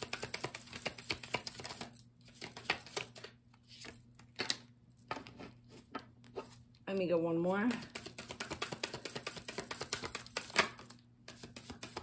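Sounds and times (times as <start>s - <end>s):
playing cards shuffled by hand: 0.0s - 4.6s.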